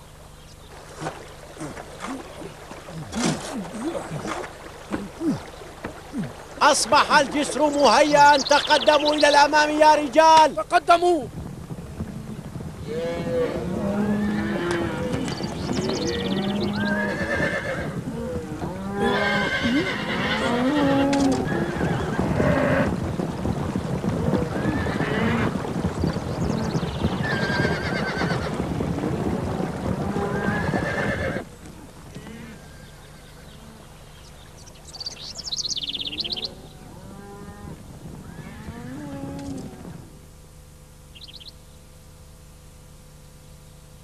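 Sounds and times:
cattle lowing: 0.6 - 8.7, 11.9 - 23.0
horses neighing: 0.7 - 10.0, 12.8 - 23.0, 24.0 - 33.9.

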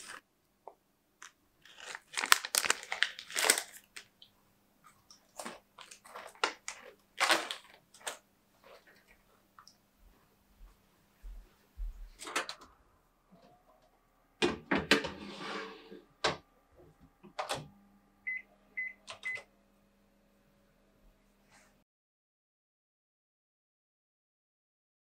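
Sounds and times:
oven door shutting: 14.4 - 16.4, 17.2 - 17.8.

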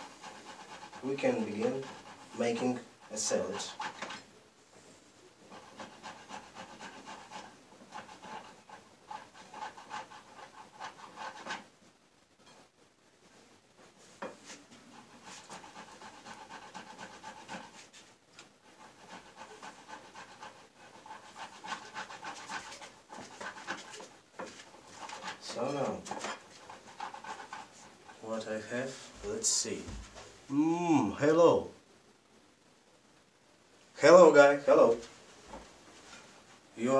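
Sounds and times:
potato grating on box grater: 0.0 - 4.2, 5.5 - 11.7, 15.0 - 18.0, 18.7 - 28.2.

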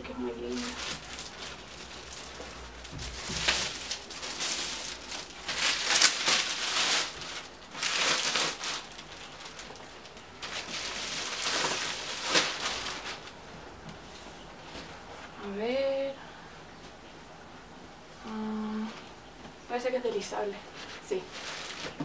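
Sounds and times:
plastic wrapping crinkling: 0.5 - 13.4, 20.7 - 22.0.

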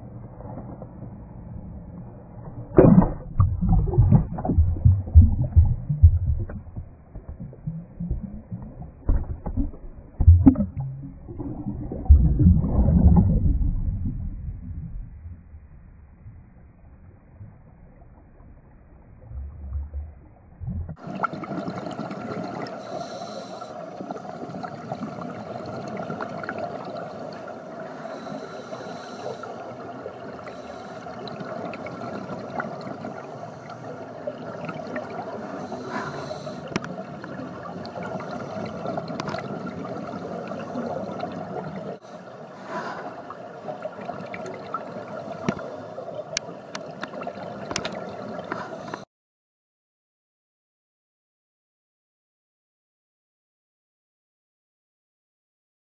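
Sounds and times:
underwater clicks: 2.7 - 12.3, 46.4 - 49.0
underwater bubbling of divers breathing: 2.7 - 15.2, 19.2 - 49.1.

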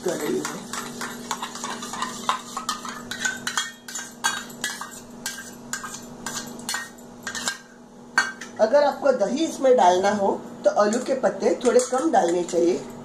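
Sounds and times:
metal spoon scraping a bowl: 0.0 - 7.7
spoon clinking on bowl and pan: 0.0 - 8.6, 10.9 - 13.0.

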